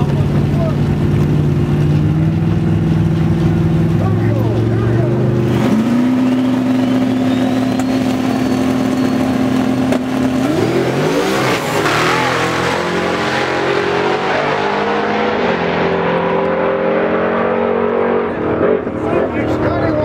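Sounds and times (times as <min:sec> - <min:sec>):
truck engine revving: 0:00.0 - 0:20.0
thin whistle: 0:05.9 - 0:09.9.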